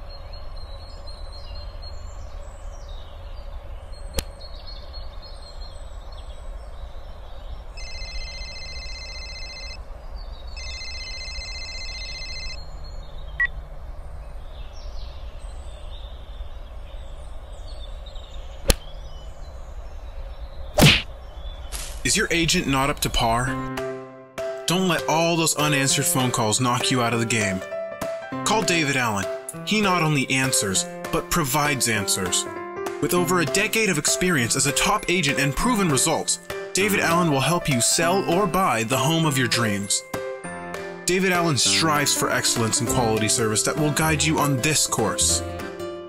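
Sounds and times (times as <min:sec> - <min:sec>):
birds chirping: 0:00.0 - 0:08.1, 0:12.6 - 0:23.7, 0:28.4 - 0:40.1, 0:41.1 - 0:46.0
sharp single clicks: 0:04.1 - 0:04.4, 0:18.6 - 0:18.9
telephone ringing: 0:07.8 - 0:09.8, 0:10.6 - 0:12.6.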